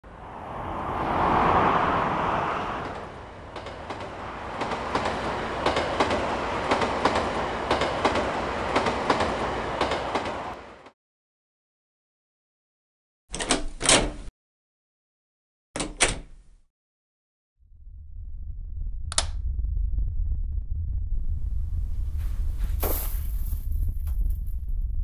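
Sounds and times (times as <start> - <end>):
car passing: 0.0 - 7.7
train wheels clickety-clack: 2.8 - 10.6.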